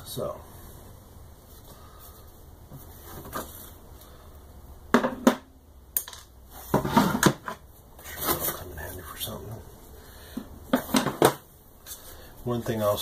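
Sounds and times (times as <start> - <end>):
wooden panels clacking together: 10.7 - 11.5.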